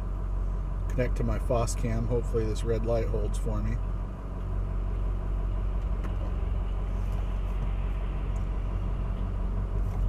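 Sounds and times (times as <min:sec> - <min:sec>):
vehicle engine idling: 0:00.0 - 0:10.0.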